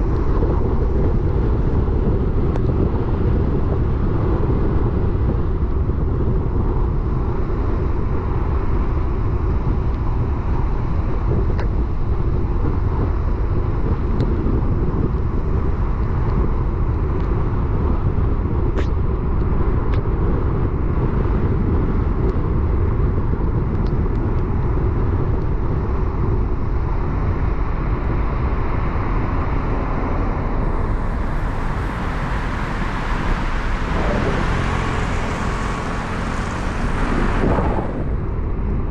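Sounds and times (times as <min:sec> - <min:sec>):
car driving rumble: 0:28.3 - 0:38.9.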